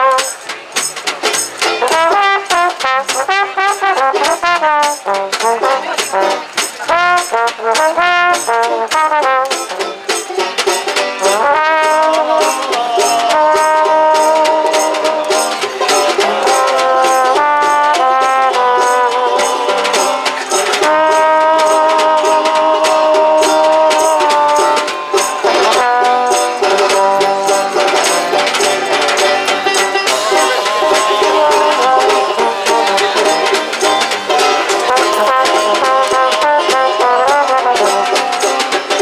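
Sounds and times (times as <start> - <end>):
trombone melody: 0.0 - 0.5, 1.8 - 39.0
plucked double bass: 0.0 - 39.0
snare drum with brushes: 0.0 - 39.0.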